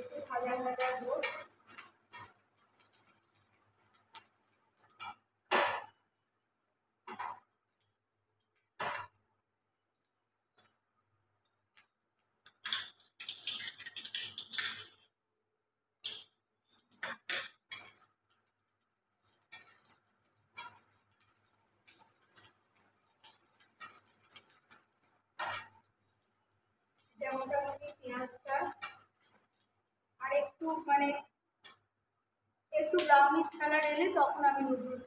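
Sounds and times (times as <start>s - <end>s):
metal spatula scraping a wok: 0.0s - 6.0s, 7.1s - 7.4s, 17.0s - 18.4s, 19.2s - 25.9s, 27.2s - 29.6s
food frying: 0.0s - 35.0s.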